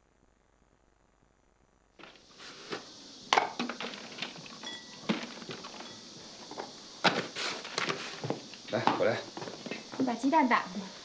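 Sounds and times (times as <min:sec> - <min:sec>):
dishes and utensils clinking: 0:04.5 - 0:06.1.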